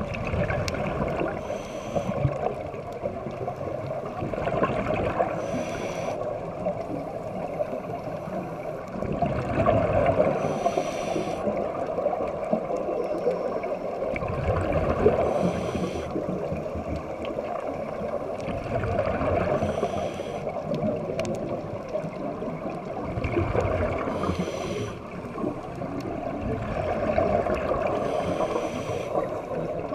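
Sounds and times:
regulator hissing inhale: 1.3s - 2.4s, 5.3s - 6.3s, 10.2s - 11.6s, 15.1s - 16.4s, 19.4s - 20.6s, 24.0s - 25.2s, 27.9s - 29.4s
regulator bubbling exhale: 23.2s - 29.9s.

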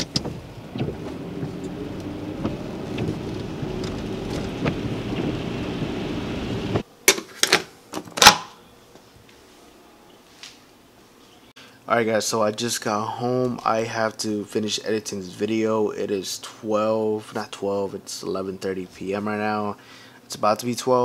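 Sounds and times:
car road rumble: 0.0s - 6.8s.

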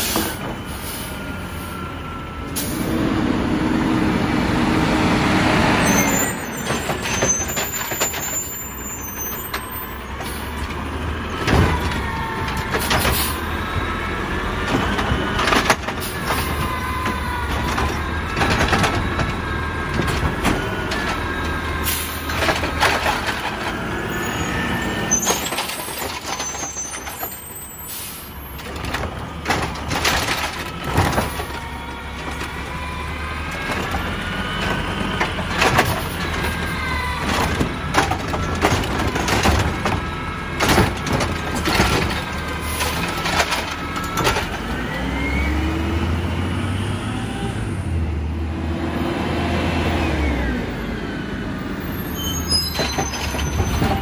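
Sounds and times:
garbage truck engine running: 0.0s - 54.0s
trash cart knocking and banging: 5.8s - 8.8s, 9.4s - 27.4s, 28.5s - 44.8s, 52.5s - 54.0s.

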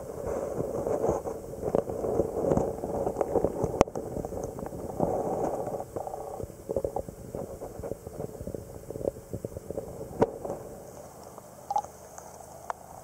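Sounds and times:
muffled underwater knocks and clicks: 0.6s - 10.6s.

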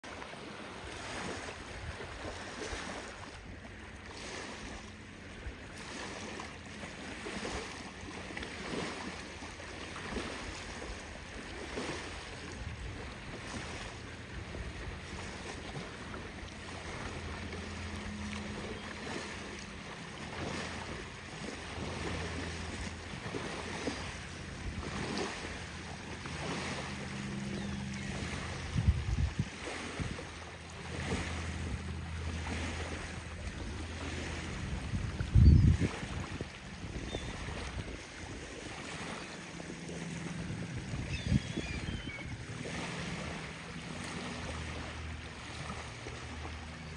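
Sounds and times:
small waves lapping on shore: 0.0s - 46.9s
low steady drone: 3.3s - 35.2s
wind on microphone: 26.4s - 31.8s, 32.6s - 39.1s, 39.9s - 43.4s.

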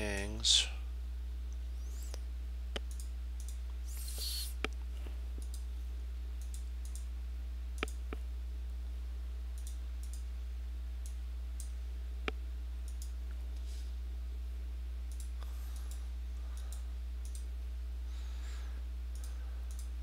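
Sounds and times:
low electrical hum: 0.0s - 20.0s
computer mouse clicking: 2.8s - 4.8s, 7.8s - 8.2s, 9.6s - 10.2s, 12.3s - 13.2s, 15.1s - 17.5s, 19.1s - 19.9s
short hiss: 3.9s - 4.6s.

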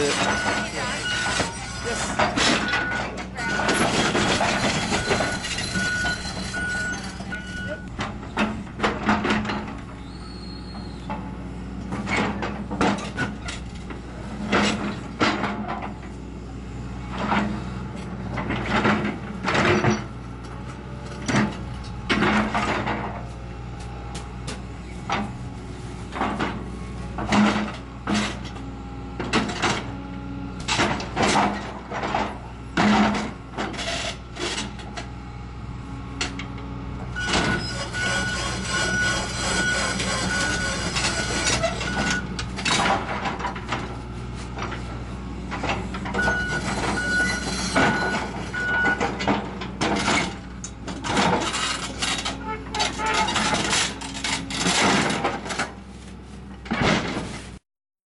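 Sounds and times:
metal crunches and clanks: 0.0s - 10.0s, 18.3s - 25.4s, 30.6s - 35.1s, 36.2s - 55.8s, 56.6s - 57.6s
diesel engine running under load: 0.0s - 57.6s.

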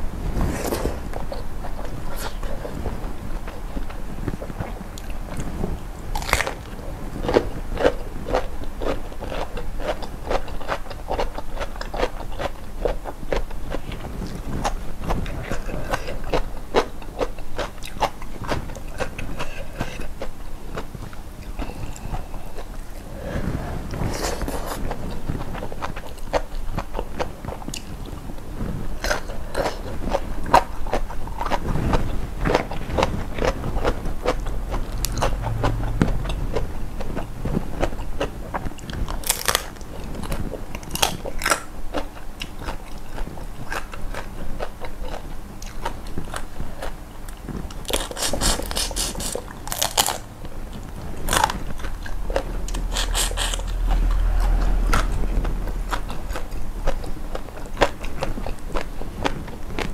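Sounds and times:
person chewing crunchy food: 0.0s - 59.9s
wet mouth sounds: 47.9s - 50.2s, 51.2s - 57.1s.

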